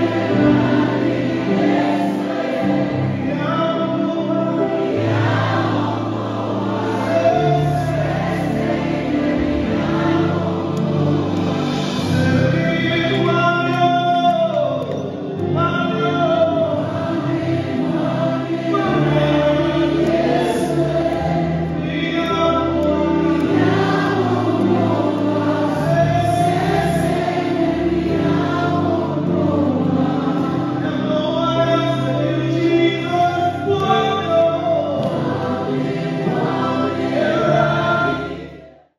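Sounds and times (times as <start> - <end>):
sustained accompaniment: 0.0 - 38.8
choir singing: 0.0 - 38.9
man singing lead: 12.0 - 17.0.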